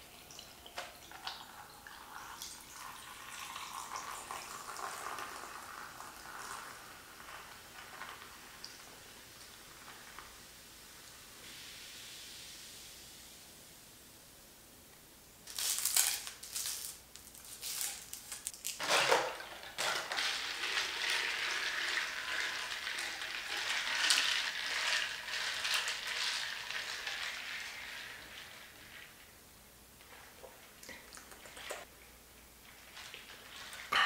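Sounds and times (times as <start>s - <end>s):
fizzing and crackling: 0.0s - 13.7s, 15.4s - 34.0s
seltzer pouring over ice: 15.5s - 29.3s.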